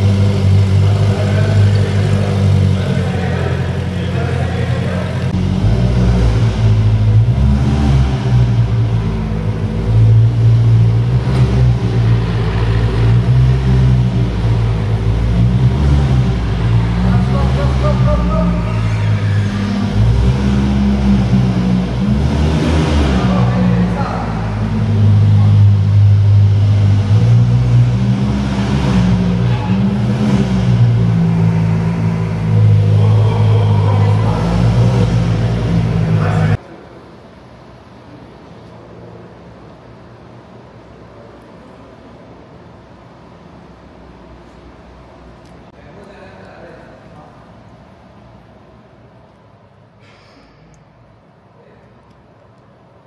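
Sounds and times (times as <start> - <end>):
car engine low revs: 0.0 - 36.6.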